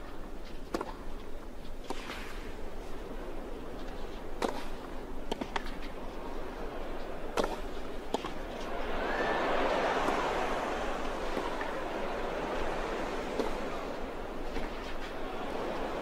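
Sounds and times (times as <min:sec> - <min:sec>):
crowd hum: 0:01.9 - 0:16.0
racket striking tennis ball: 0:04.4 - 0:05.7, 0:07.4 - 0:08.4, 0:13.3 - 0:13.6.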